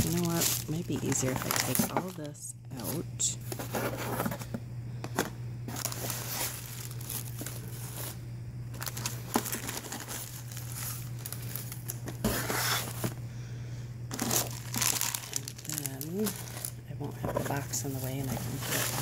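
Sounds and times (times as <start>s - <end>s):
tissue paper crinkling: 0.0s - 2.2s, 5.7s - 13.1s, 14.1s - 19.0s.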